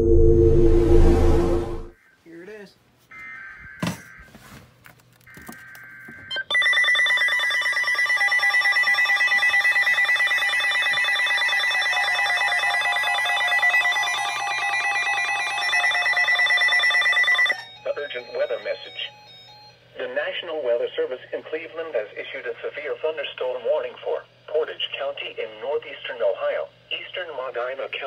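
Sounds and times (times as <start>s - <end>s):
high-pitched pulsing alarm: 0.0s - 1.9s, 12.1s - 19.8s
warbling data tones: 0.0s - 1.9s.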